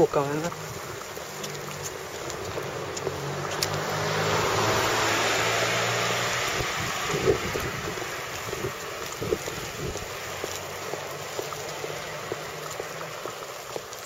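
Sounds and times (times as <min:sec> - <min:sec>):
car passing by: 0:00.3 - 0:14.0.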